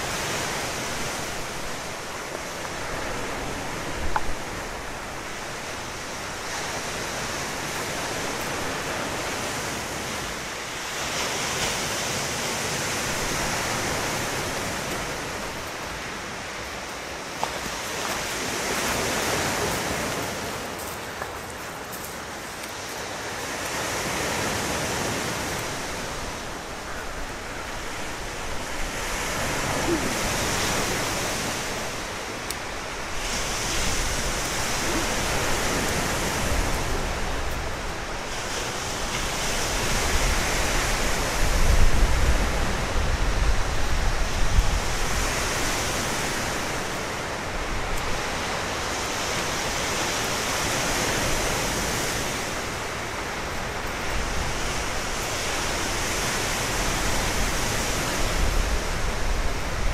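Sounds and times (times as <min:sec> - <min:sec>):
waves breaking on shore: 0:00.0 - 0:59.9
wind rumble on microphone: 0:23.8 - 0:59.9.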